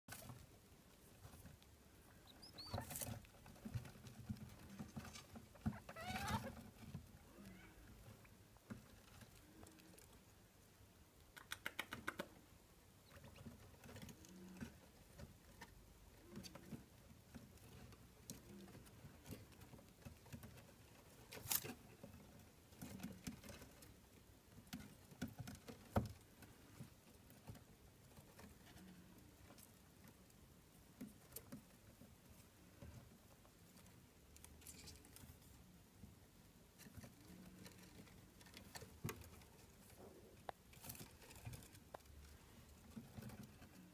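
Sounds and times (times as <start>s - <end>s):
small claws clicking: 11.2s - 12.4s.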